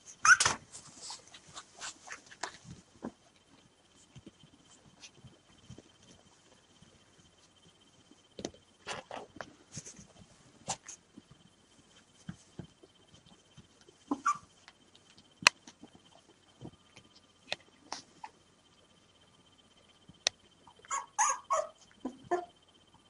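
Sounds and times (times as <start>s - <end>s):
puppies rustling on fabric: 0.2s - 7.6s.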